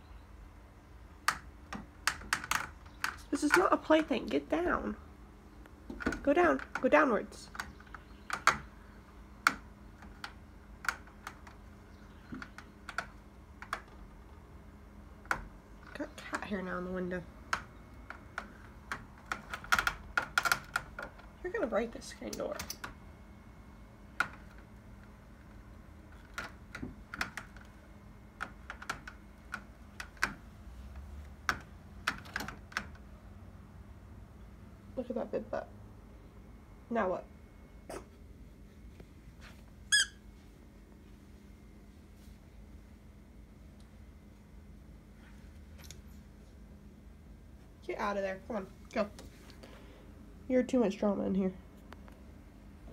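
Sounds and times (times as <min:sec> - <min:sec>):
cat claws clicking on window screen: 0:01.2 - 0:04.1, 0:06.0 - 0:08.7, 0:09.4 - 0:14.4, 0:17.4 - 0:21.4, 0:22.2 - 0:23.0, 0:24.1 - 0:33.1.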